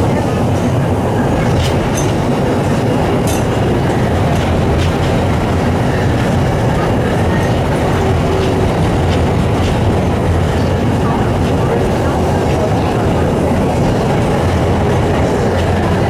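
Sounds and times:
tram wheels rumbling on rails: 0.0 - 16.0.

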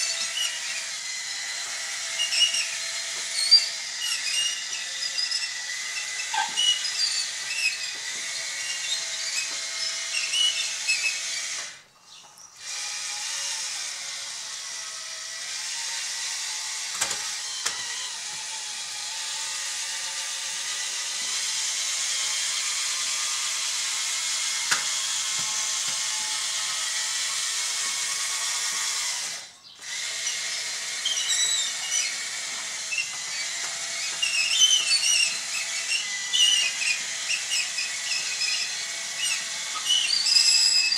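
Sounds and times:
small electric motors whining: 0.0 - 40.9.

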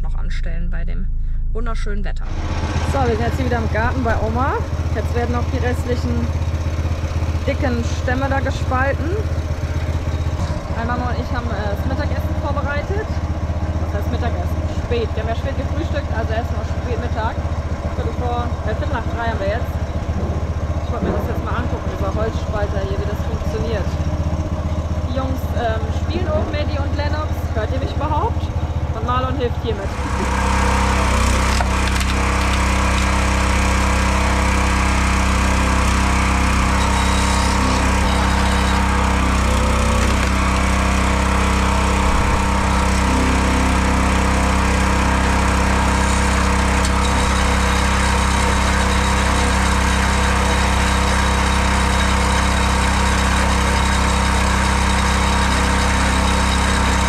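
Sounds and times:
small petrol engine running: 2.2 - 57.0
wood cracking: 29.9 - 33.6, 35.7 - 49.4.

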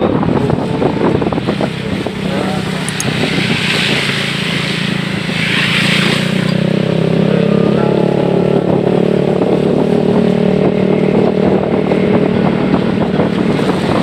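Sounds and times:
vehicle engine hum: 0.0 - 14.0
wind buffeting microphone: 0.0 - 14.0
tyres hissing on wet road: 1.0 - 7.2.

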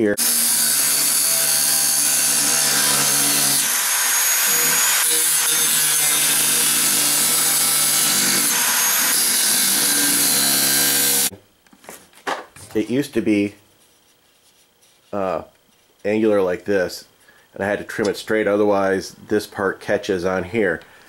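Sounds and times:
angle grinder cutting steel: 0.2 - 11.3.

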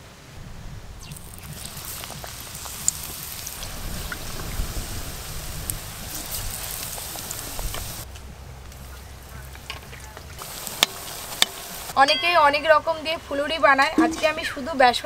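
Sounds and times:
eggplant sizzling in hot oil: 1.0 - 8.0, 10.4 - 12.0.

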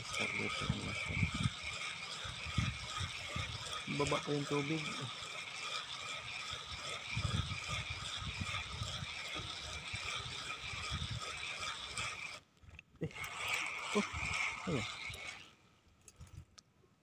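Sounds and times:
wind buffeting microphone: 0.0 - 4.3, 6.3 - 12.3
high-pitched outdoor drone: 13.0 - 15.4.

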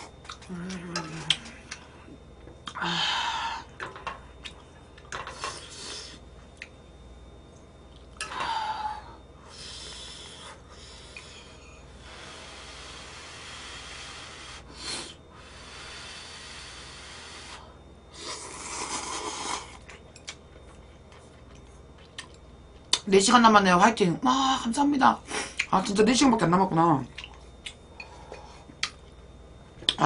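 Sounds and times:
person slurping noodles: 18.2 - 19.8.

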